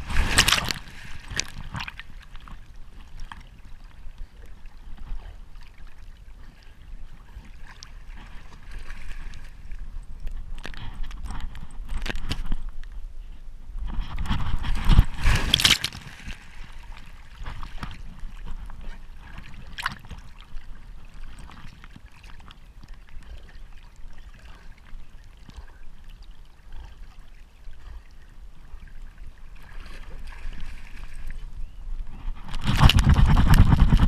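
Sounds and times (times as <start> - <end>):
water lapping and gurgling: 0.0 - 12.8, 13.9 - 34.0.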